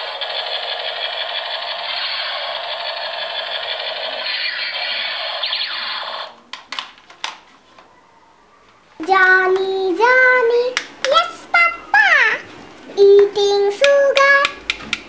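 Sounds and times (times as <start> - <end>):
toy ray gun buzzing: 0.0 - 6.4.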